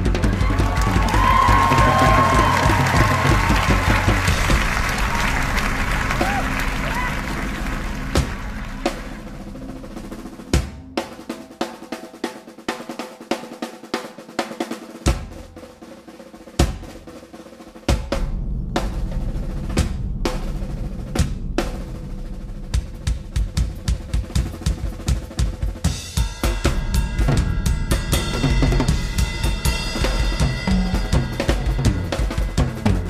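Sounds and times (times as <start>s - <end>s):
bass drum toms and snare: 0.0s - 12.0s, 15.0s - 33.0s
cymbals crashing: 1.3s - 11.6s, 25.8s - 33.0s.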